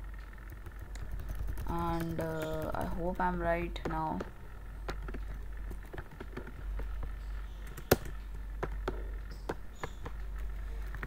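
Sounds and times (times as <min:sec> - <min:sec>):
steady low hum: 0:00.0 - 0:11.0
computer keyboard keys tapping: 0:00.4 - 0:03.2, 0:04.9 - 0:06.9, 0:07.5 - 0:11.0.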